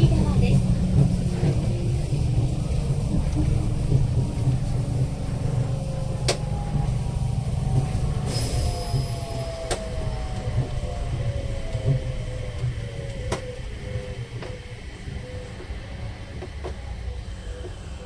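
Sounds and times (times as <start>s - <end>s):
train running rumble: 0.0s - 18.0s.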